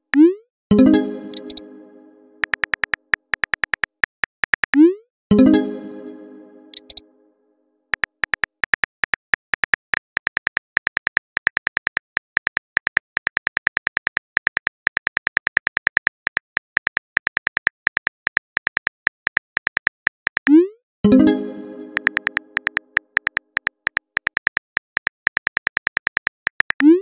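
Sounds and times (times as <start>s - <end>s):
phone keyboard typing clicks: 1.2s - 1.7s, 2.4s - 4.8s, 6.7s - 7.0s, 7.9s - 20.6s, 21.9s - 27.0s.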